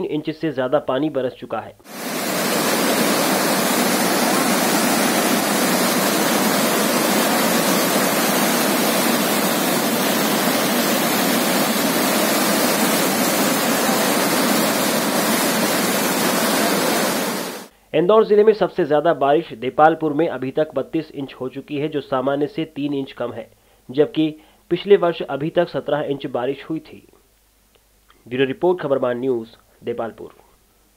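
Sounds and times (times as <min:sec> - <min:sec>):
water rushing through spillway: 0:01.9 - 0:17.7.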